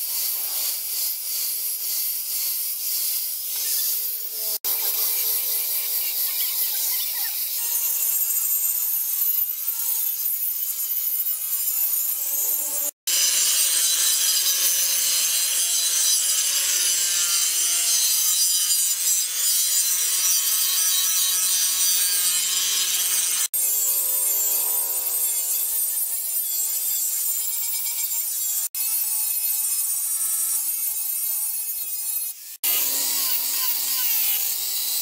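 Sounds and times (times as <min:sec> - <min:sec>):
grinder hissing on metal: 0:00.0 - 0:35.0.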